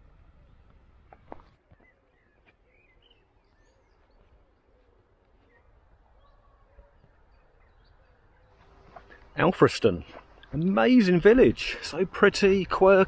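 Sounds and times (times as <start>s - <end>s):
faint bird calls: 0.2s - 9.3s.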